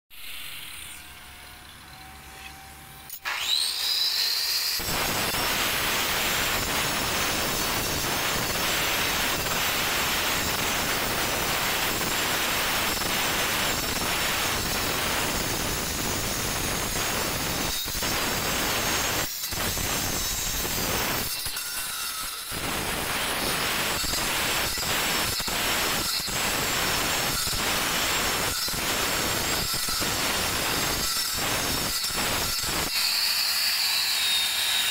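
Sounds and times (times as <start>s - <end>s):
angle grinder grinding stone: 0.2s - 34.9s.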